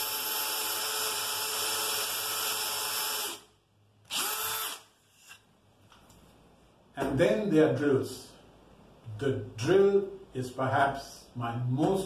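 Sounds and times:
cordless drill boring into wood: 0:00.0 - 0:03.5, 0:04.1 - 0:04.9.

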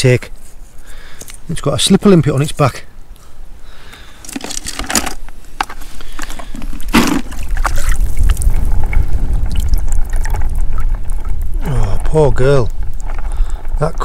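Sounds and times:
seawater splashing and trickling: 0:06.1 - 0:11.6.

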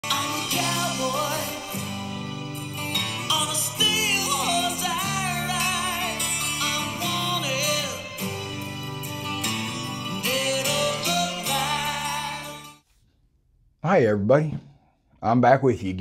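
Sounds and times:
intro music with wavering melody: 0:00.0 - 0:12.8.

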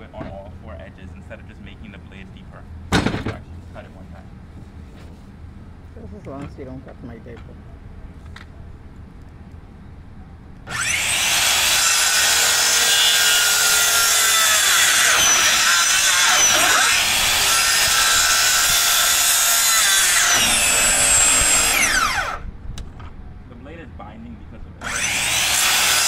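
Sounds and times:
circular saw cutting wood: 0:10.7 - 0:22.4, 0:24.8 - 0:26.0.

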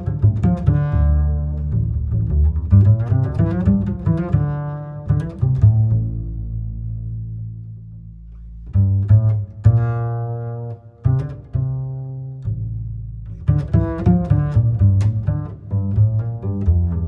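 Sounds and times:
low sustained music notes: 0:00.0 - 0:17.0.

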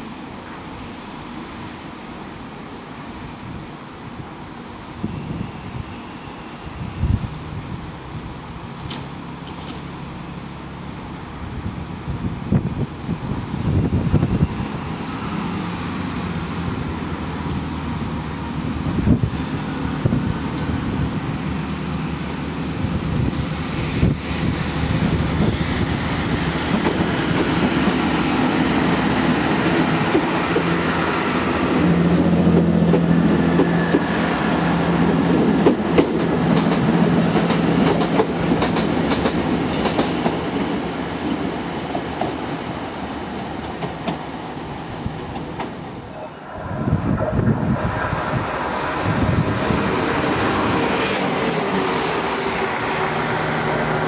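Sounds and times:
diesel train engines droning: 0:00.0 - 0:54.0
train wheels clicking on track: 0:08.7 - 0:10.2, 0:22.0 - 0:46.1.

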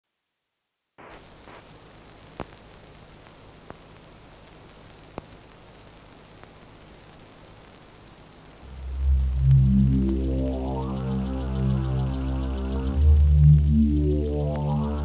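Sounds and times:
film soundtrack hiss: 0:00.1 - 0:15.0
low hum: 0:08.6 - 0:15.0.

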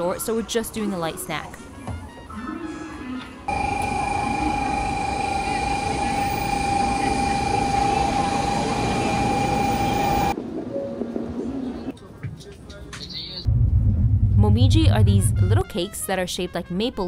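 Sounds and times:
high-pitched train whine: 0:03.5 - 0:11.5
bullet train rumble and rush: 0:03.5 - 0:12.0, 0:13.4 - 0:15.7.

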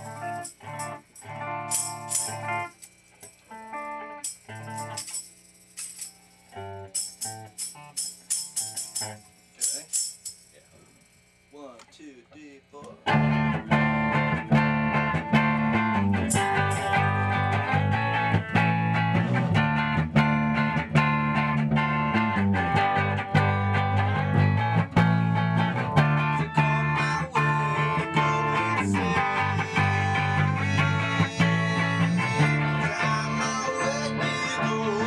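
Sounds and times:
rock music with electric guitars: 0:00.0 - 0:02.9, 0:03.5 - 0:05.0, 0:13.0 - 0:35.0.

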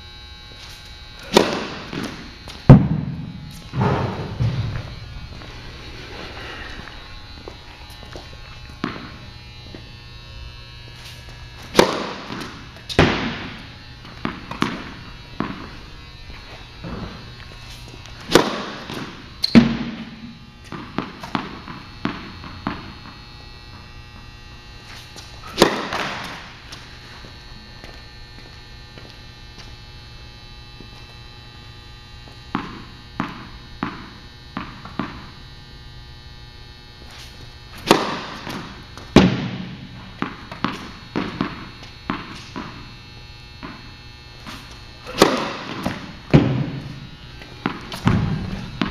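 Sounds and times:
steady low hum: 0:00.0 - 0:48.9
racket striking tennis ball: 0:01.2 - 0:04.8, 0:08.8 - 0:09.2, 0:11.1 - 0:15.8, 0:16.8 - 0:23.2, 0:25.2 - 0:26.8, 0:37.8 - 0:42.9, 0:44.4 - 0:48.9
tennis ball bouncing on court: 0:01.3 - 0:04.9, 0:08.8 - 0:09.2, 0:11.7 - 0:15.8, 0:18.2 - 0:23.2, 0:25.5 - 0:26.5, 0:32.5 - 0:35.3, 0:37.8 - 0:42.9, 0:44.5 - 0:48.9.

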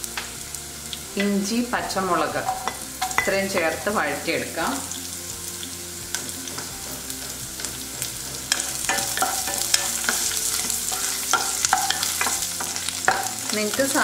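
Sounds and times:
food sizzling in hot oil: 0:00.0 - 0:14.0
wooden spatula scraping pan: 0:06.1 - 0:13.5.

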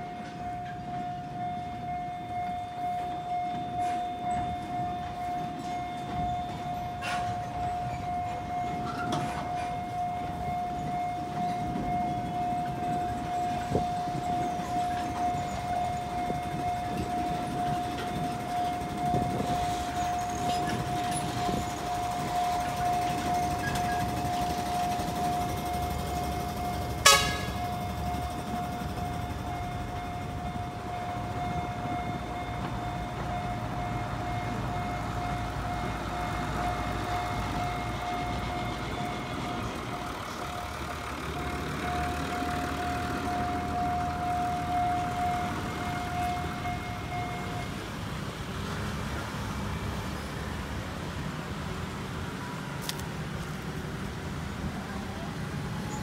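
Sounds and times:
high warning tone: 0:00.0 - 0:48.0
locomotive engine rumble: 0:00.0 - 0:56.0.

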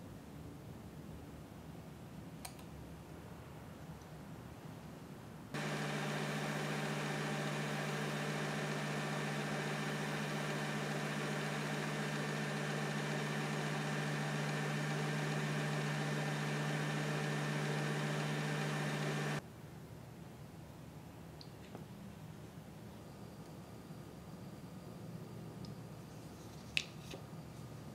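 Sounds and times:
microwave oven humming: 0:05.6 - 0:19.4.

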